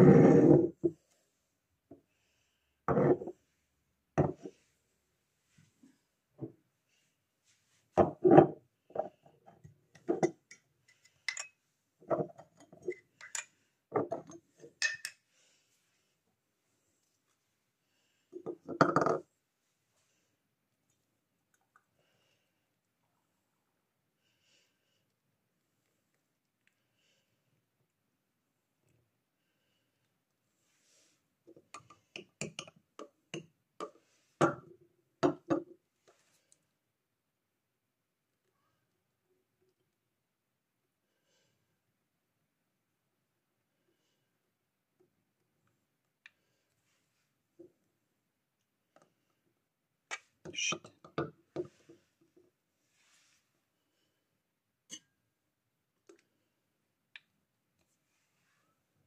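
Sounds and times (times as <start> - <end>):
glassware clinking: 14.8 - 15.2.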